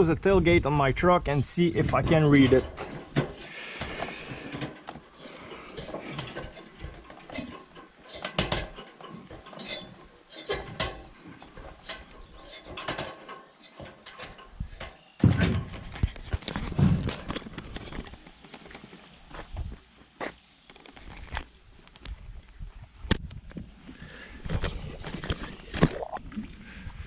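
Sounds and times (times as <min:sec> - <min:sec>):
metallic knocks on ladder rungs: 0:01.9 - 0:16.0.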